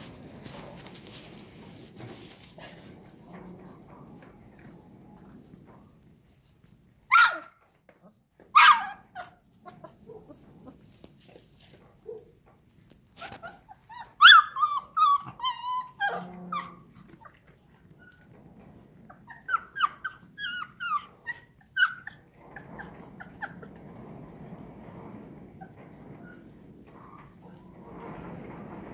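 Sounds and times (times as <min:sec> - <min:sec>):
puppies yipping and barking: 0:13.2 - 0:17.3, 0:19.3 - 0:22.2
puppy whining: 0:13.2 - 0:18.2, 0:19.2 - 0:22.2.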